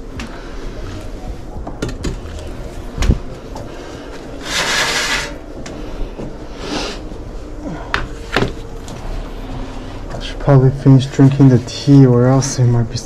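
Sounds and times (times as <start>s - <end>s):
pot sliding over a surface: 4.4s - 5.5s.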